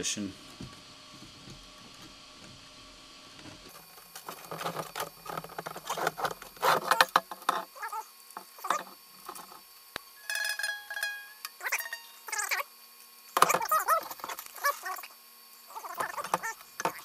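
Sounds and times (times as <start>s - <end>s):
string scraping through plastic: 3.4s - 7.8s
string squeak: 10.2s - 12.5s.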